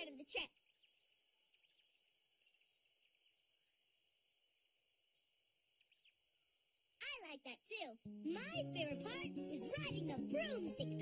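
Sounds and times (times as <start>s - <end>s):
faint high chirping: 0.0s - 7.4s.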